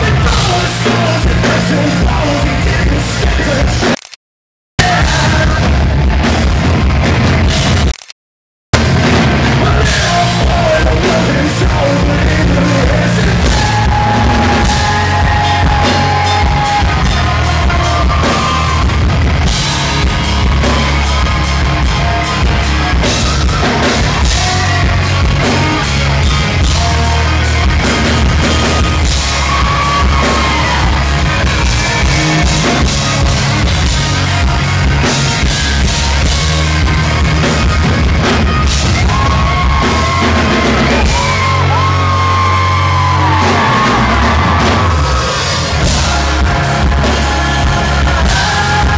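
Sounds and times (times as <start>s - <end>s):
live rock band playing: 0.0s - 4.0s, 4.8s - 8.0s, 8.8s - 48.9s
man singing: 0.0s - 4.0s, 4.8s - 5.9s, 9.4s - 18.8s, 39.1s - 48.9s.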